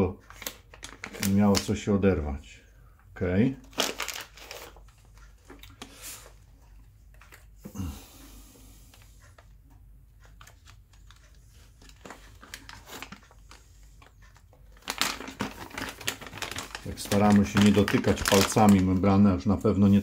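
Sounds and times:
hands handling plastic parts: 3.6 - 7.5, 10.2 - 19.0.

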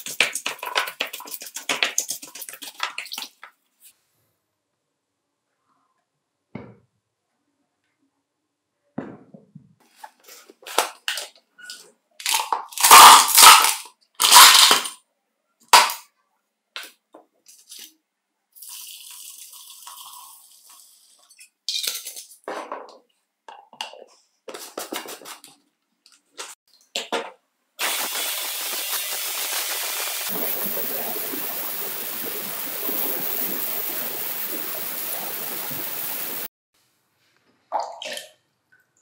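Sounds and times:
ultrasonic cleaner high hiss: 27.8 - 36.5.

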